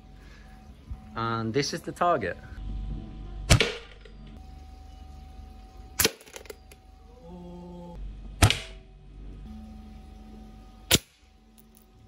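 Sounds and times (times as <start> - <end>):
bb gun shot: 3.5 - 4.0, 8.4 - 8.8.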